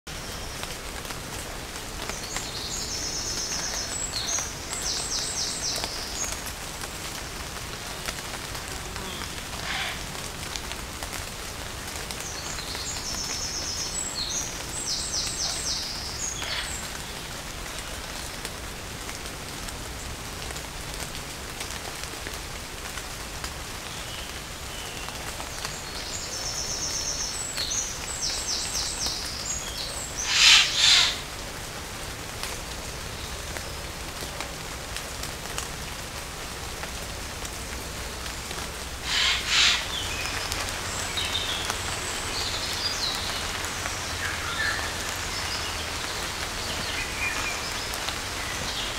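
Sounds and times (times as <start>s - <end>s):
light rain falling: 0.1s - 48.9s
songbird trilling: 30.2s - 31.2s, 39.1s - 40.3s.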